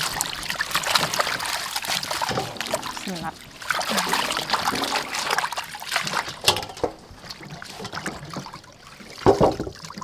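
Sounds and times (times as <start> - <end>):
water splashing and dripping: 0.0 - 10.0.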